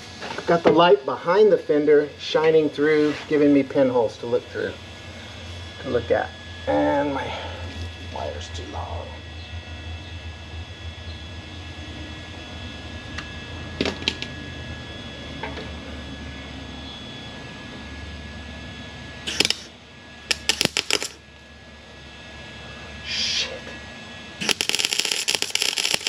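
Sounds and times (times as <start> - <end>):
steady low hum: 0.0 - 26.0
sharp clicks: 19.3 - 19.7, 20.3 - 21.2, 24.4 - 26.0
welder crackling: 19.3 - 19.7, 20.3 - 21.2, 24.4 - 26.0.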